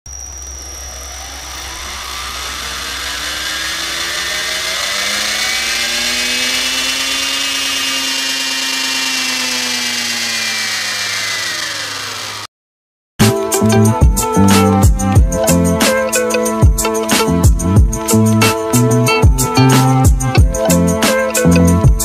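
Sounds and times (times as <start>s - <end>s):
electric motors whining: 0.1s - 12.5s.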